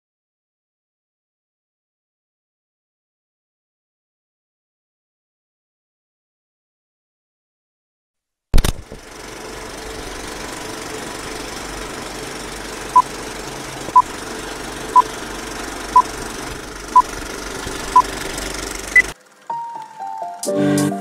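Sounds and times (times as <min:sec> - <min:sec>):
projector running noise: 0:08.6 - 0:20.3.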